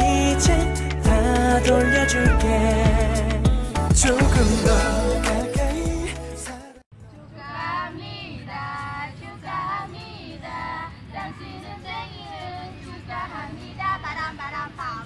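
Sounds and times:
women singing together: 0:07.2 - 0:15.0.

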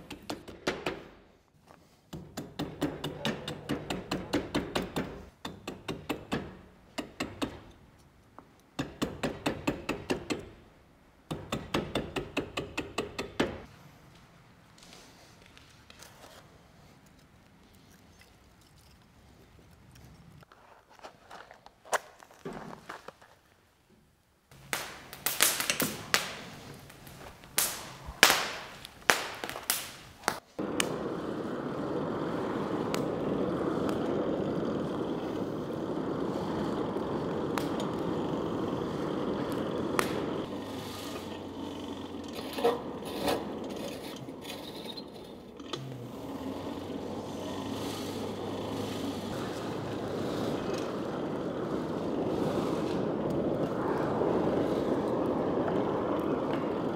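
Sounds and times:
air rushing through fire: 0:24.5 - 0:56.9
kindling crackling and popping: 0:24.5 - 0:56.9.

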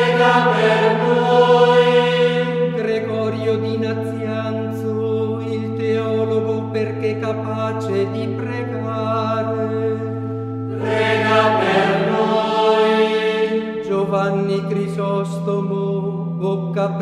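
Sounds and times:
choir chanting: 0:00.0 - 0:02.8, 0:10.7 - 0:13.8.

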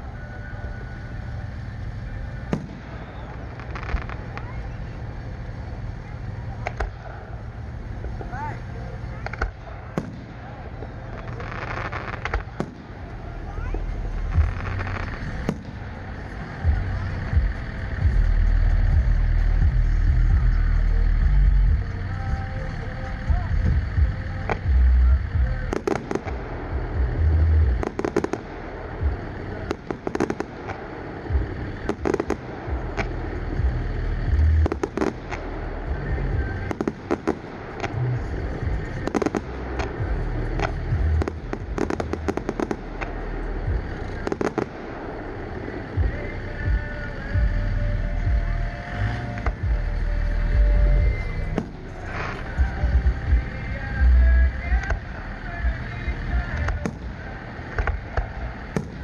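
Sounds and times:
firework cracks and crackles: 0:00.0 - 0:59.0
firework booms: 0:02.4 - 0:04.6, 0:09.2 - 0:13.1, 0:13.8 - 0:15.8, 0:23.7 - 0:46.9, 0:56.5 - 0:59.0.

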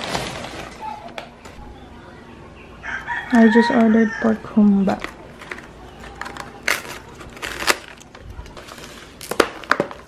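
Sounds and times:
plastic container crackling: 0:00.0 - 0:01.3, 0:04.8 - 0:10.0.

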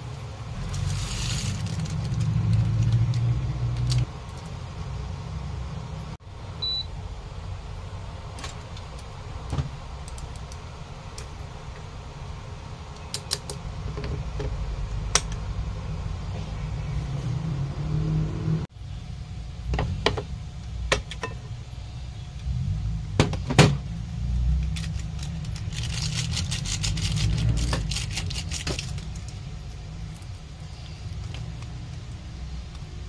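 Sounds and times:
steady low hum: 0:00.0 - 0:33.0
seasoning sachet rustling: 0:00.6 - 0:04.0, 0:24.6 - 0:29.5.

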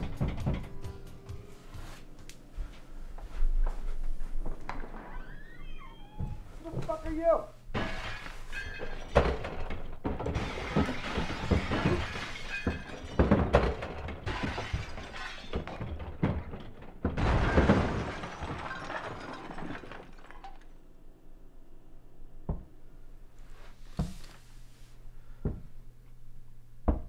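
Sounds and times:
knocks: 0:00.0 - 0:01.1
crashing and smashing: 0:07.7 - 0:20.8.

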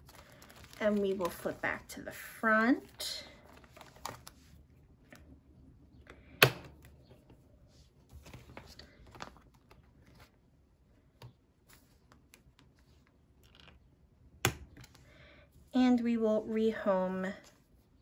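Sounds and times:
plastic sleeve pages rustling: 0:00.0 - 0:02.0, 0:02.8 - 0:04.7, 0:07.9 - 0:10.5.

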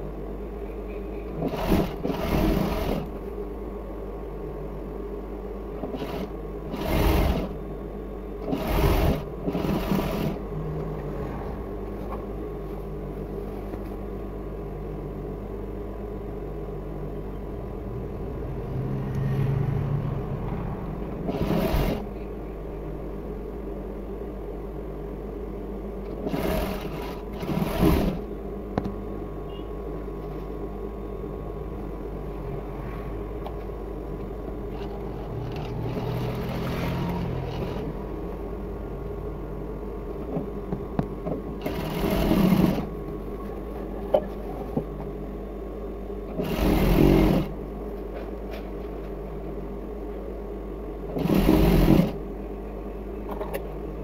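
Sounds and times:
sewing machine running: 0:01.4 - 0:03.1, 0:05.8 - 0:07.6, 0:08.4 - 0:10.4, 0:21.2 - 0:22.1, 0:26.1 - 0:28.3, 0:34.7 - 0:38.0, 0:41.6 - 0:42.9, 0:46.3 - 0:47.6, 0:51.1 - 0:52.2.

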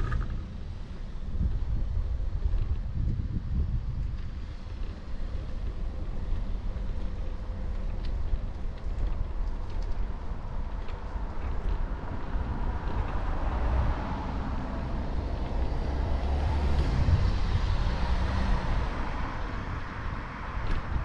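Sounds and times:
wind and road noise: 0:00.0 - 0:21.0
car passing: 0:12.3 - 0:21.0.

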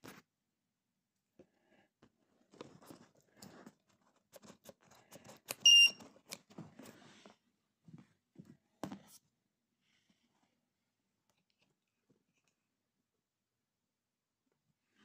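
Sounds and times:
high-pitched charger beep: 0:05.6 - 0:06.0.

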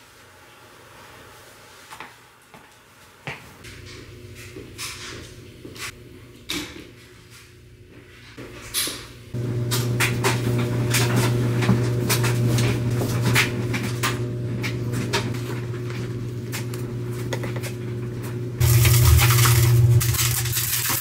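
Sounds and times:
appliance motor hum: 0:09.2 - 0:21.0.

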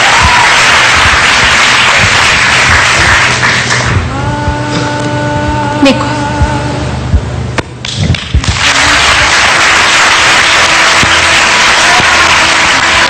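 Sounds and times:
audience applauding: 0:00.0 - 0:04.0, 0:08.2 - 0:13.0.

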